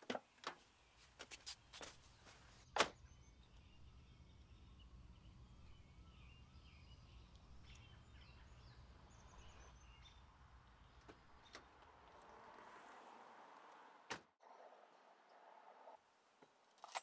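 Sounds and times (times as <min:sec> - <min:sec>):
faint birdsong chirps: 0:00.3 - 0:12.6
low outdoor rumble: 0:03.0 - 0:12.5.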